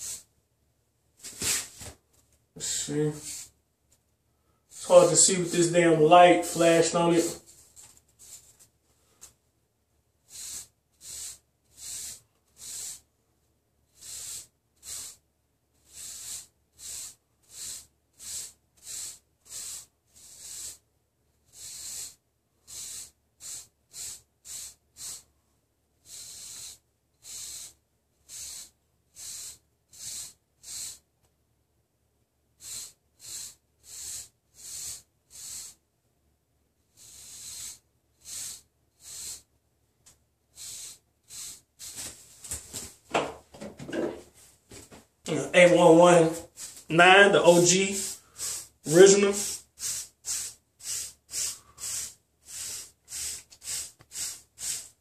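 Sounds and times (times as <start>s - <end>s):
brush swishing through hair: 1.2s - 2.0s, 41.5s - 43.0s, 43.6s - 51.2s.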